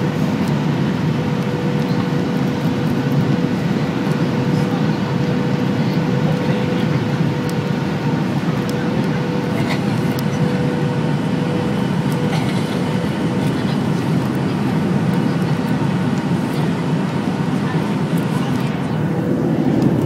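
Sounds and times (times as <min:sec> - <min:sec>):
airplane cabin rumble: 0:00.0 - 0:20.0
steady low whine: 0:13.2 - 0:20.0.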